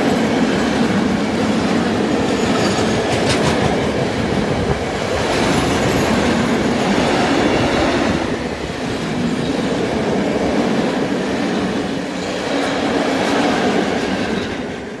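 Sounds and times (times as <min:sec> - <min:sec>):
freight train rolling on rails: 0:00.0 - 0:15.0
wheels clickety-clack: 0:02.2 - 0:07.9.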